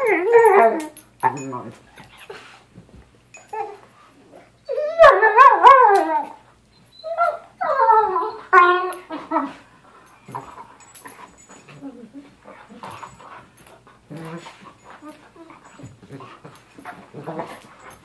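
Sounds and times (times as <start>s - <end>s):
dog vocalizing during play: 9.0s - 18.0s.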